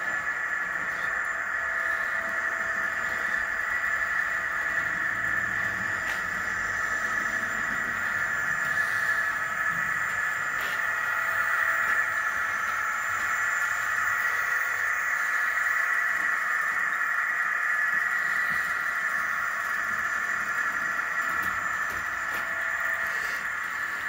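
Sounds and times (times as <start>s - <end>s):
model train motor whirring: 0.0s - 24.0s
wheels rolling on rails: 0.0s - 24.0s.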